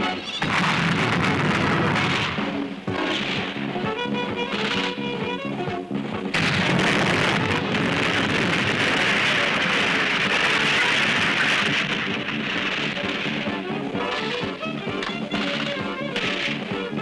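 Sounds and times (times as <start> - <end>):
soundtrack music: 0.0 - 17.0
fire and falling debris: 0.2 - 3.5, 6.4 - 16.6
explosion blast: 0.4 - 3.6, 6.3 - 14.6.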